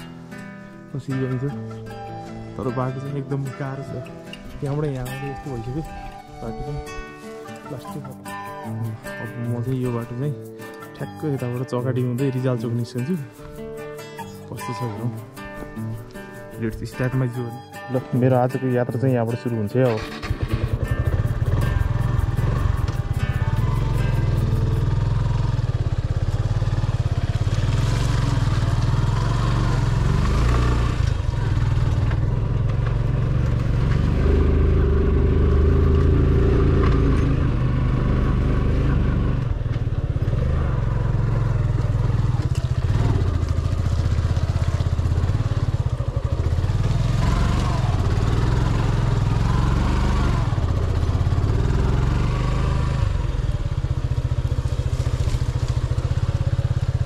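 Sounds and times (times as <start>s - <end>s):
motorcycle engine revving: 19.8s - 57.0s.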